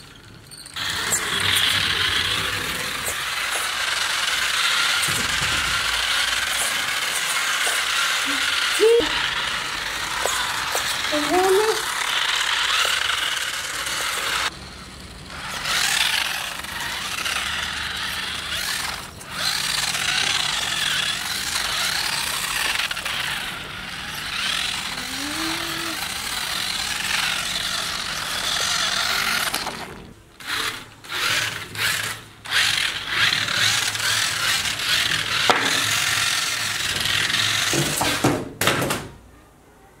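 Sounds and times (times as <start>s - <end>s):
small electric motor whirring: 0.0s - 38.2s
tyres scrubbing on floor: 0.8s - 14.5s.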